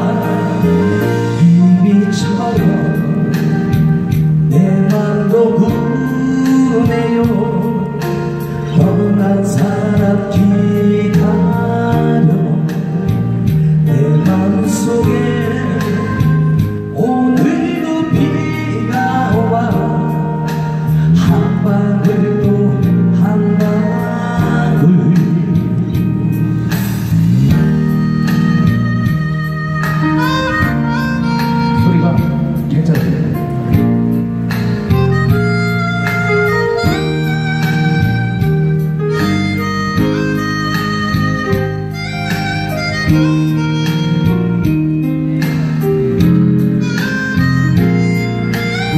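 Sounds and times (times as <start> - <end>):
instrumental accompaniment with beat: 0.0 - 48.9
man singing a ballad: 0.0 - 48.9.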